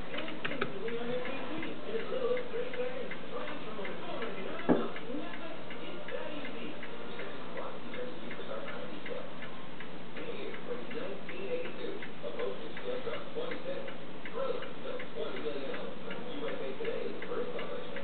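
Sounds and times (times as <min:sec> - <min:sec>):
regular ticking: 0:00.0 - 0:18.0.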